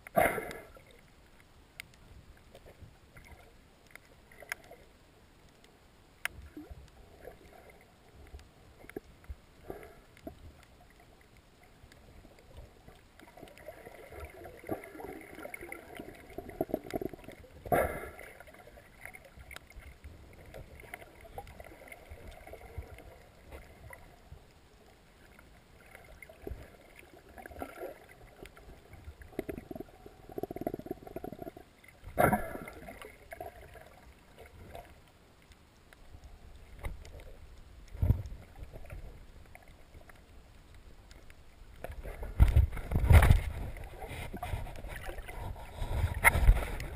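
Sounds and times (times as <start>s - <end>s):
muffled water swishing: 0.0s - 46.9s
small clicks: 1.4s - 4.8s.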